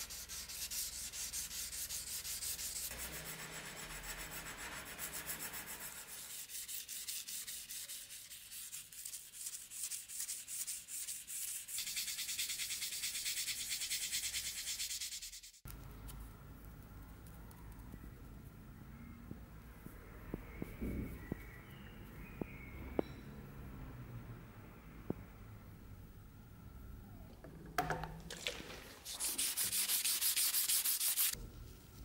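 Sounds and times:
sanding steel blade: 0.0 - 15.6, 29.1 - 31.4.

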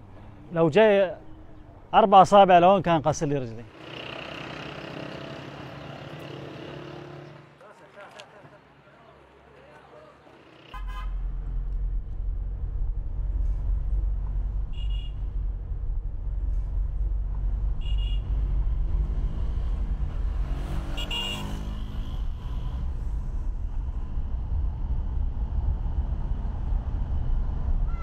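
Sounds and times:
vehicle passing by: 3.8 - 7.5, 15.5 - 28.0
car horn beeps: 10.8 - 11.2, 14.7 - 15.2, 17.8 - 18.3, 20.8 - 22.7
car interior engine rumble: 10.9 - 20.4.

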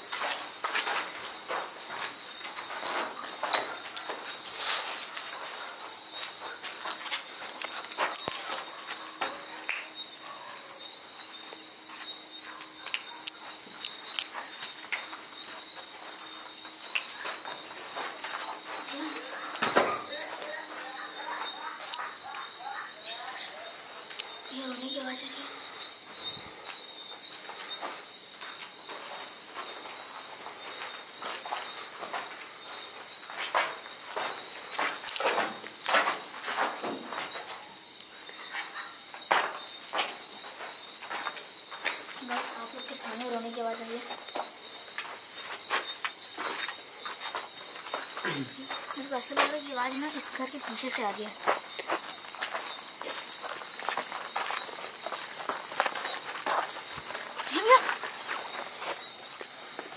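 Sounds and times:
footsteps on concrete: 0.0 - 9.5, 24.0 - 38.1, 39.2 - 59.9
crickets chirping: 0.0 - 59.9.

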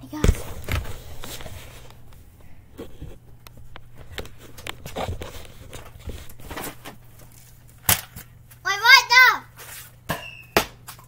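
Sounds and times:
faint low hum: 0.0 - 8.8.

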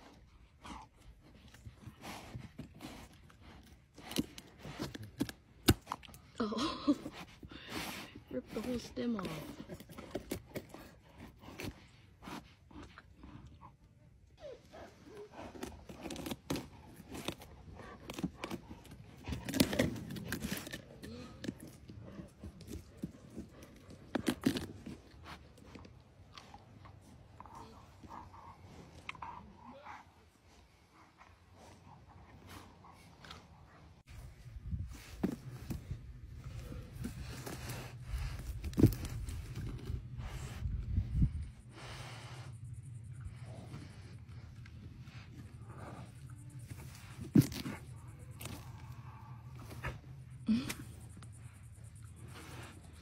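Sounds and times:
crackles and scrapes: 0.0 - 29.4, 30.0 - 53.0
animal gnawing pumpkin: 0.0 - 53.0
teeth crunching pumpkin rind: 15.3 - 26.9.

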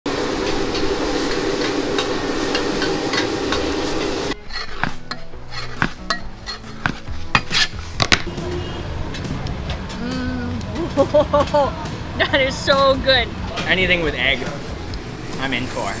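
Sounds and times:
food sizzling in a wok: 0.1 - 4.9.

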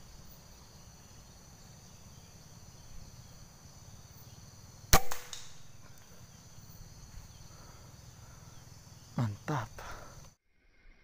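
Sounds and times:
air rifle shot: 4.9 - 5.7.

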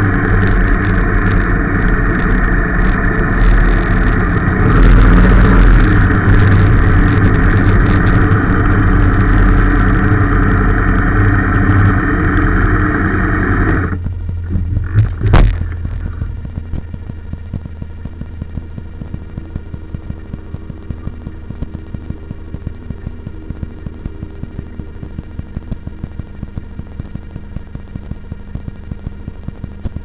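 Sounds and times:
road noise: 0.0 - 17.4
vehicle engine running: 0.0 - 30.0.

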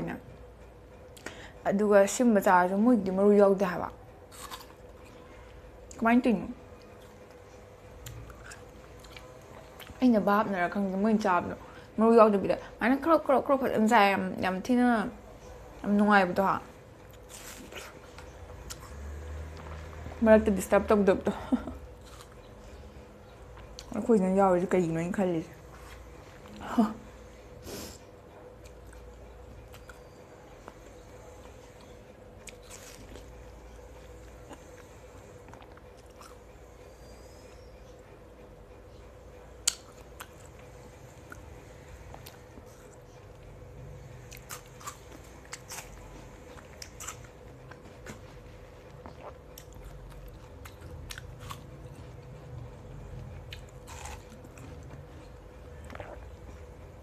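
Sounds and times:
faint steady hum: 0.0 - 57.0
chewing watermelon: 4.3 - 6.0, 6.8 - 10.0, 16.4 - 20.2, 21.7 - 24.7, 28.3 - 38.0, 39.6 - 57.0.

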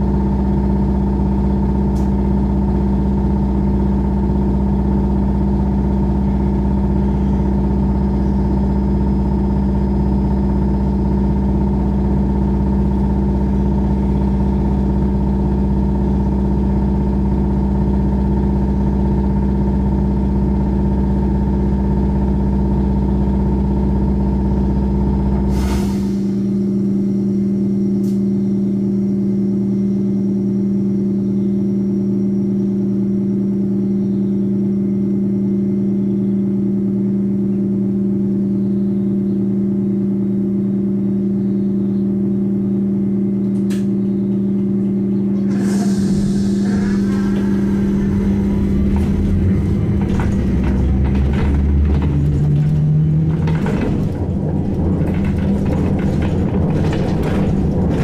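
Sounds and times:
trolleybus equipment humming: 0.0 - 58.0
air release hiss: 25.5 - 26.4, 45.4 - 48.5.

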